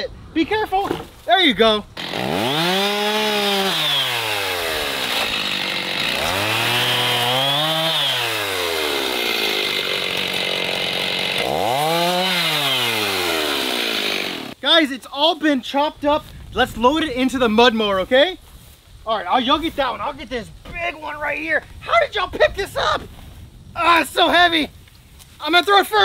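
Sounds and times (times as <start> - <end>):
chainsaw chain cutting wood: 2.0 - 14.6
chainsaw engine revving: 2.0 - 14.6.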